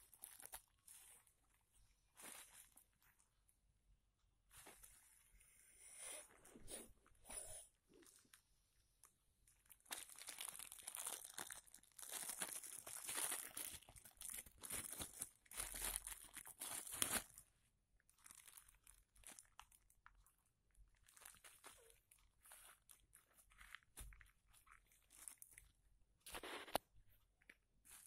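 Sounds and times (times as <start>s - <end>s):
bubble wrap crinkling: 0.0s - 3.4s, 9.4s - 28.0s.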